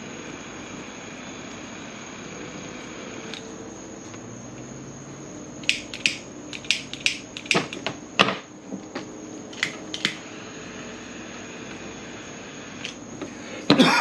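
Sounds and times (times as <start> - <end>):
torch lighter clicking: 5.6 - 7.8, 9.5 - 10.2.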